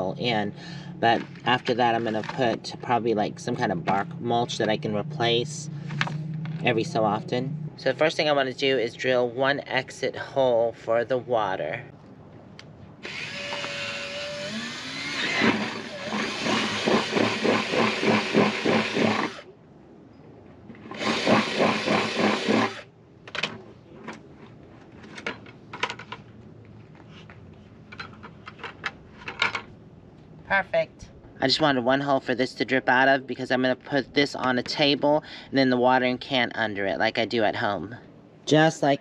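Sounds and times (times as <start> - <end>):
power drill boring plastic: 13.0 - 19.5, 20.9 - 22.8.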